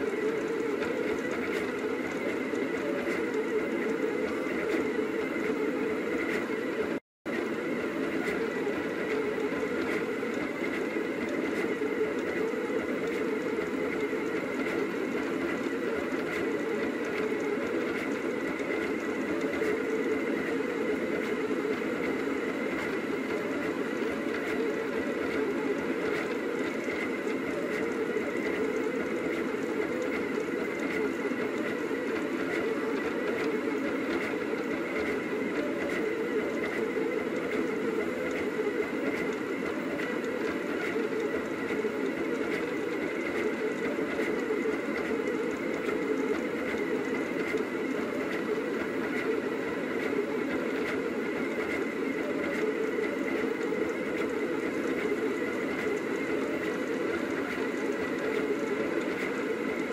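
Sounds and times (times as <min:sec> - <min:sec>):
printer stepper motors whirring: 0:00.0 - 0:59.9.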